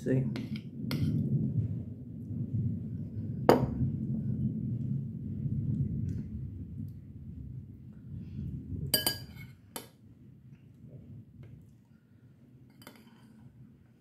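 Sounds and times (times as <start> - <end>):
metal spoon clinking on bowl: 9.0 - 9.9, 12.7 - 13.3.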